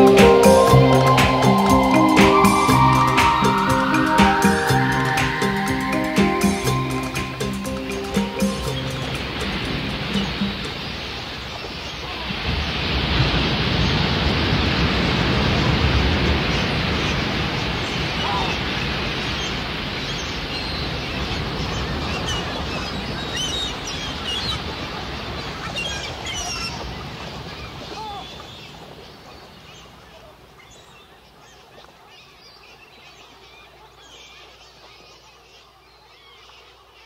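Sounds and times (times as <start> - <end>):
high chirps: 0.0 - 10.8
ocean surf: 0.0 - 30.7.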